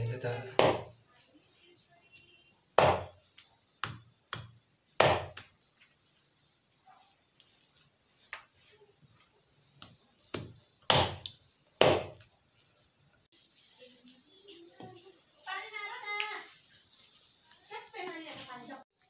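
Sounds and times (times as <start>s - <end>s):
knife chopping on wooden block: 0.6s - 0.9s, 2.8s - 3.2s, 3.8s - 5.4s, 10.3s - 12.2s.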